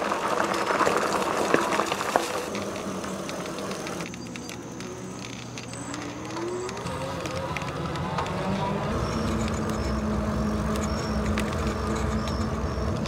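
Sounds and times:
faint motor whine: 0.0 - 13.0
tyres crunching over gravel: 0.0 - 13.0
tyres rolling on pavement: 0.0 - 13.0.

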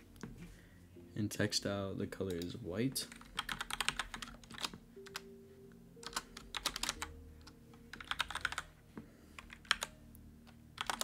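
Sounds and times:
typing on computer keyboard: 3.1 - 5.2, 6.0 - 7.1, 7.9 - 8.7, 9.4 - 9.9, 10.8 - 11.0.

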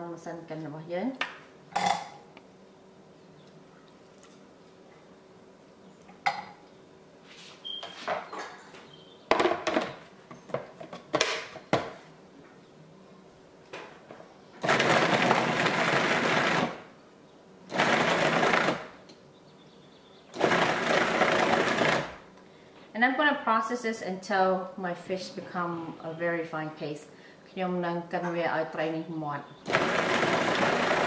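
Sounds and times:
food processor motor running: 14.6 - 16.8, 17.7 - 19.0, 20.3 - 22.2, 29.6 - 31.0.

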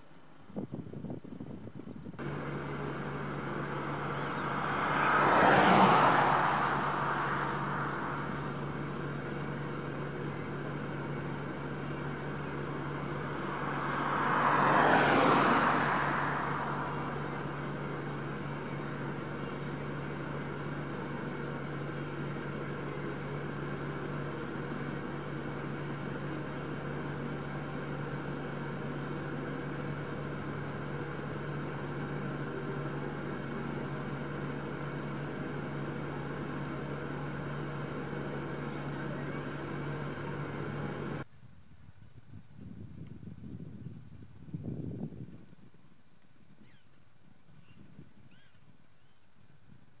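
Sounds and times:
vehicles passing by: 0.5 - 41.3.

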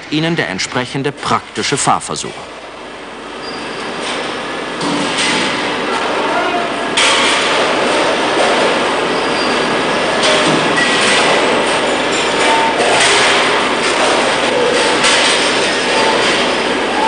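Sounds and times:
mechanical hiss and rumble: 0.0 - 10.8.

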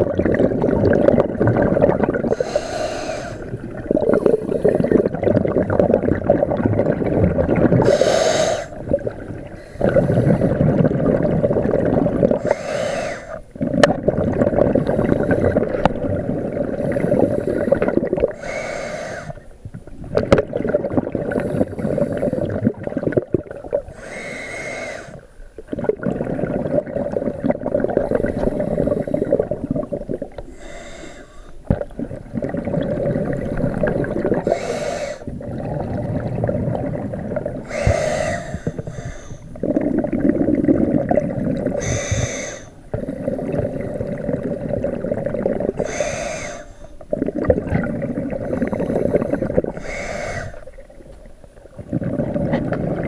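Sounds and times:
exhaust bubbles rushing: 0.0 - 2.3, 3.5 - 7.9, 8.8 - 12.5, 13.6 - 18.4, 25.7 - 28.3, 31.7 - 34.5, 35.2 - 38.0, 39.6 - 41.8, 42.9 - 45.8, 51.8 - 53.0
regulator hiss on inhale: 2.3 - 5.1, 7.8 - 10.6, 12.4 - 13.6, 16.7 - 19.6, 21.3 - 22.8, 23.8 - 25.6, 27.9 - 32.2, 33.2 - 36.3, 37.6 - 40.0, 41.6 - 44.4, 45.5 - 47.2, 48.2 - 52.7.

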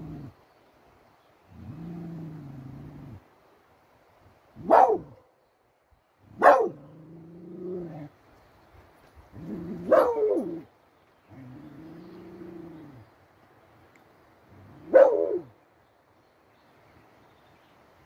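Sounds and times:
dog barking: 4.6 - 5.2, 6.4 - 6.9, 9.9 - 10.6, 14.9 - 15.5.

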